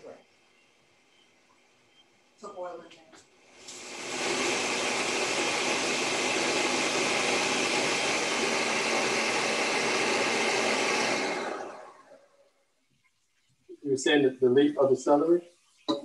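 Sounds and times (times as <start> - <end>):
blender running: 3.4 - 12.3.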